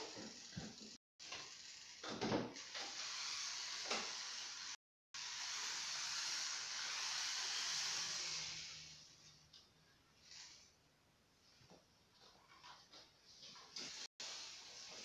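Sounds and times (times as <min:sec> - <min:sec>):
toy train motor whirring: 0:00.0 - 0:09.2, 0:10.2 - 0:10.8.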